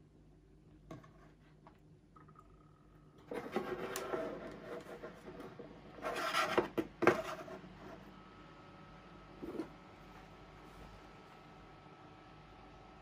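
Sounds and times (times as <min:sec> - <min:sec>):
plastic fan rubbing and scraping: 0:03.3 - 0:08.0.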